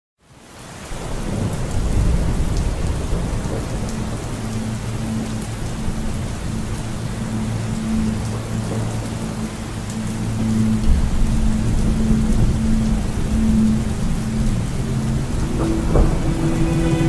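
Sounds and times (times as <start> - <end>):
heavy rain falling: 0.2 - 17.0
low steady drone: 3.2 - 17.0
low thunder rumble: 10.8 - 17.0.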